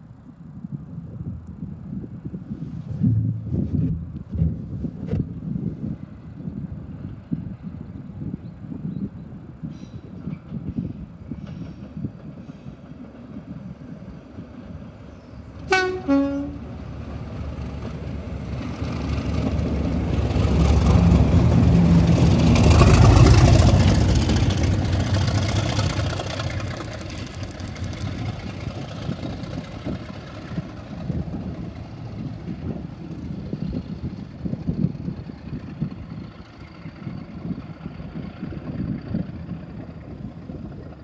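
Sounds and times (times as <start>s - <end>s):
diesel locomotive engines passing: 1.9s - 41.0s
two-tone locomotive horn: 15.6s - 16.8s.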